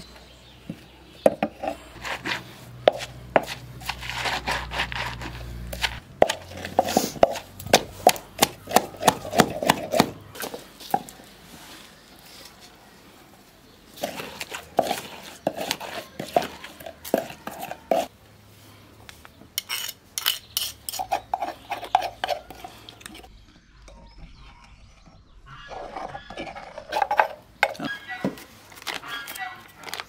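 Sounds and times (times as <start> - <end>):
pestle pounding in wooden mortar: 1.2 - 10.5.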